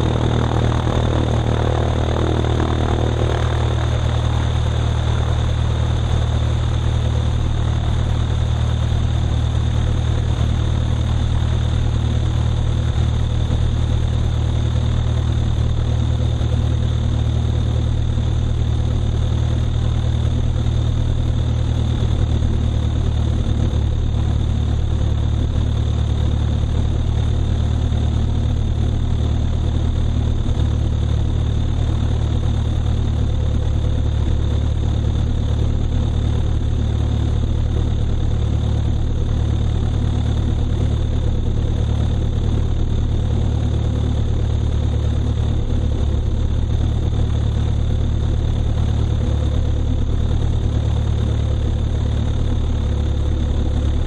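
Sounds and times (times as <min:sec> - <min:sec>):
faint high whine: 0:00.0 - 0:14.6
light airplane engine humming: 0:00.0 - 0:54.0.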